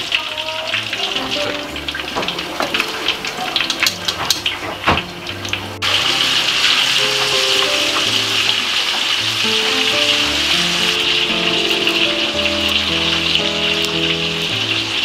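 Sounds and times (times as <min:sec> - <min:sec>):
fish frying in hot oil: 0:00.0 - 0:15.0
background music: 0:00.6 - 0:15.0.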